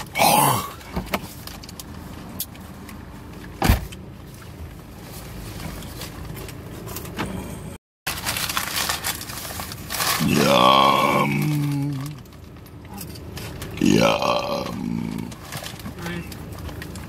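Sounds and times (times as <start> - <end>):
handling noises inside car: 0.7 - 10.2
paper bag rustling: 8.1 - 12.3.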